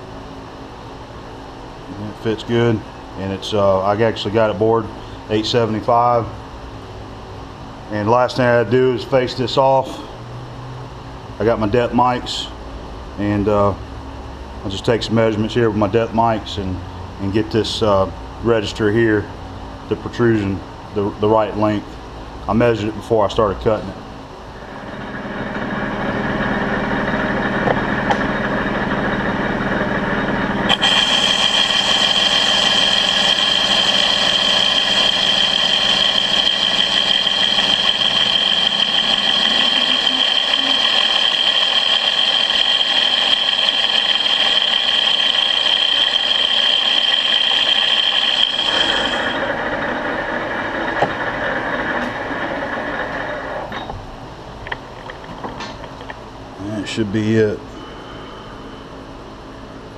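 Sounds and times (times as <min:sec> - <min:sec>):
metal lathe running: 0:24.5 - 0:54.0
high tone with hiss of cutting: 0:30.7 - 0:49.5.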